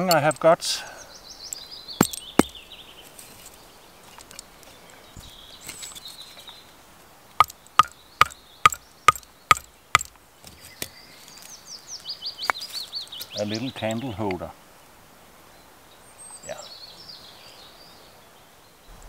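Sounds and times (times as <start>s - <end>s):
axe hammering metal: 2.0s - 2.6s, 7.4s - 10.1s.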